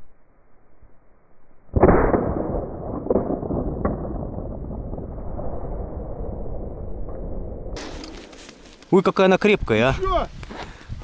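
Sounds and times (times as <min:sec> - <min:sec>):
muffled shotgun shot: 0:01.7 - 0:05.1
wind on microphone: 0:09.5 - 0:11.0.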